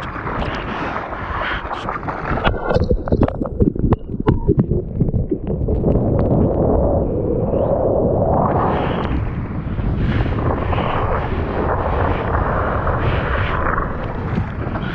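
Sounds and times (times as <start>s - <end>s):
water splashing against surfboard: 0.0s - 6.5s.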